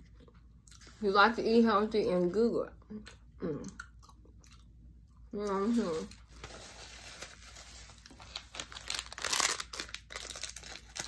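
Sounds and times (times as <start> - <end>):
paper and wrapper crinkling: 5.5 - 11.0.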